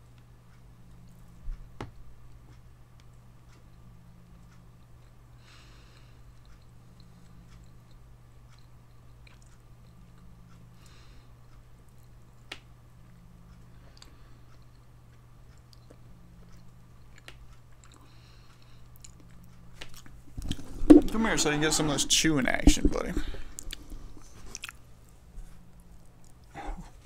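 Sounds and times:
steady low hum: 0:00.0 - 0:27.0
soft wet squishes: 0:23.5 - 0:25.2.

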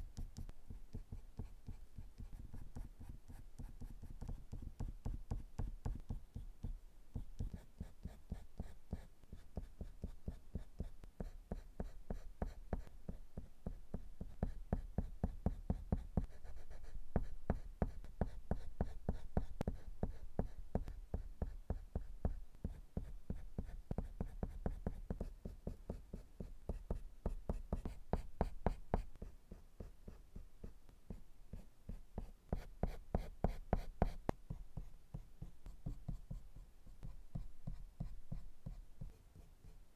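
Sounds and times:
pencil scratching on paper: 0:00.2 - 0:06.4, 0:07.1 - 0:39.8.

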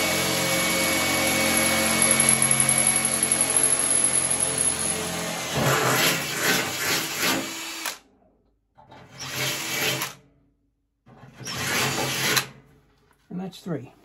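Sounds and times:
cordless drill boring through metal: 0:00.0 - 0:08.0, 0:09.1 - 0:10.2, 0:11.4 - 0:12.5.

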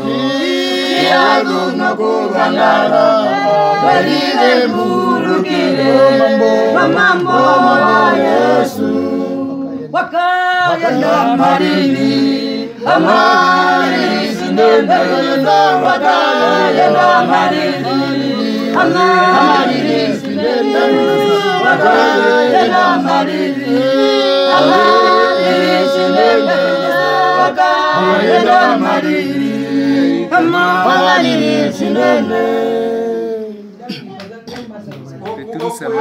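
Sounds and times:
choir singing a hymn: 0:00.0 - 0:33.4.

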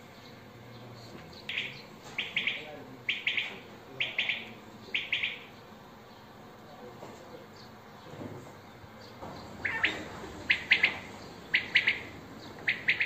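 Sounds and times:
bird chirping: 0:00.1 - 0:06.3, 0:09.0 - 0:13.0.

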